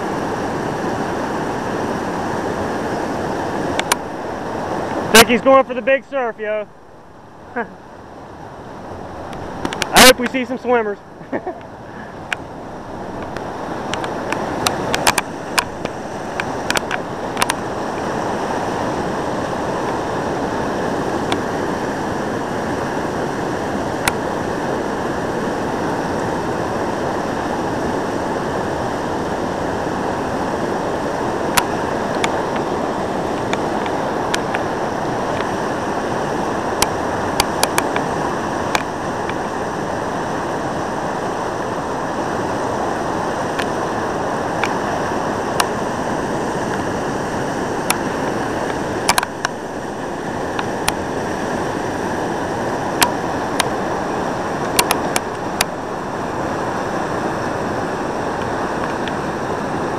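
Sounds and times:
whitewater rapid roaring: 0.0 - 59.9
sharp clicks: 9.3 - 10.4, 13.2 - 17.6.

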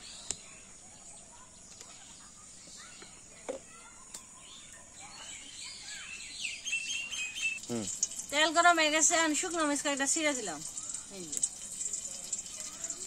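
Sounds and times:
faint bird chirps: 0.0 - 13.0
high insect-like tone: 6.8 - 13.0.

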